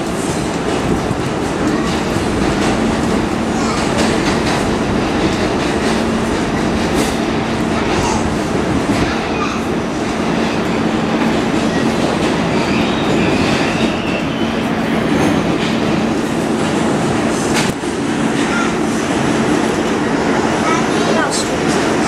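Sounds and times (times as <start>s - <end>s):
wheels rumbling on rails: 0.0s - 22.0s.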